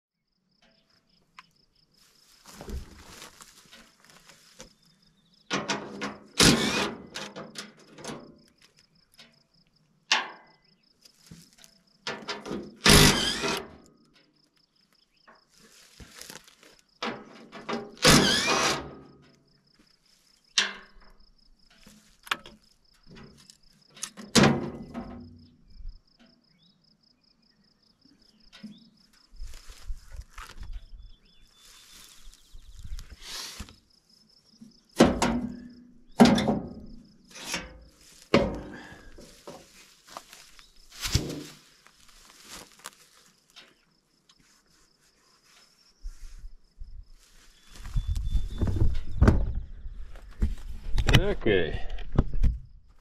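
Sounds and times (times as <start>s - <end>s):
insect chirping: 0.2s - 5.5s, 6.2s - 17.0s, 17.8s - 50.4s
impact wrench bursts: 6.4s - 7.0s, 12.8s - 13.6s, 18.0s - 18.8s.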